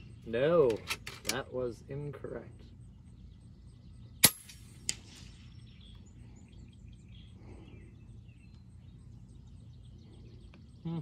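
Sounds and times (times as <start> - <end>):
air rifle shot: 4.2 - 5.5.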